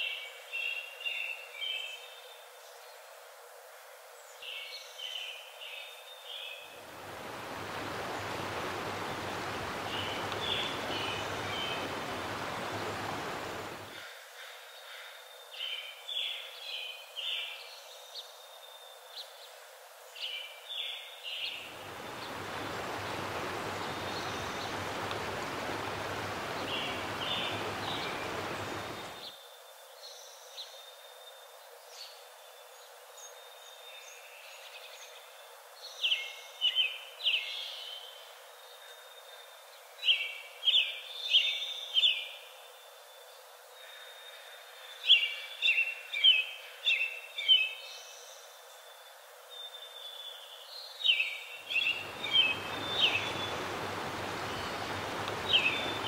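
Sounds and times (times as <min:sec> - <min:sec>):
small birds chirping: 0:04.6 - 0:14.0, 0:20.8 - 0:29.4, 0:49.7 - 0:56.0
rushing water: 0:06.7 - 0:14.0, 0:21.6 - 0:29.3, 0:51.7 - 0:56.0.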